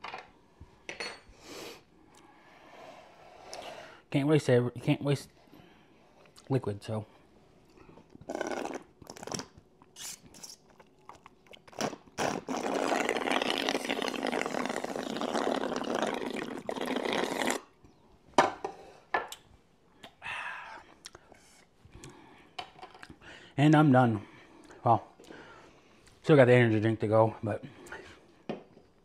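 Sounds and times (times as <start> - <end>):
man slurping liquid: 8.2 - 17.7.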